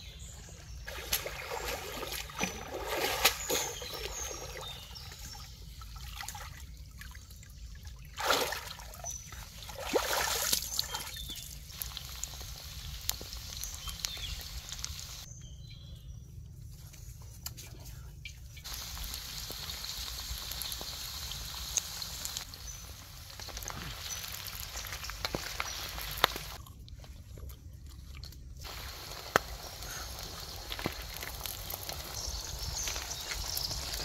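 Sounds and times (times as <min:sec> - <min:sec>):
water trickling and sloshing: 0:00.6 - 0:12.4
water splashing: 0:00.9 - 0:04.6, 0:08.1 - 0:09.0, 0:09.6 - 0:11.2.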